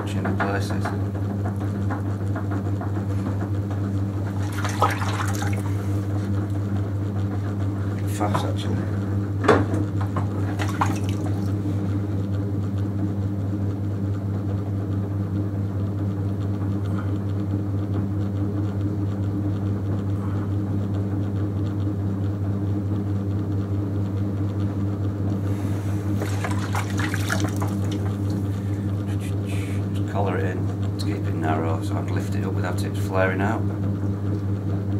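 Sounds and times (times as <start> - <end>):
potter's wheel humming: 0.0 - 34.9
wet clay swishing: 4.3 - 6.2, 10.4 - 11.9, 25.4 - 28.7.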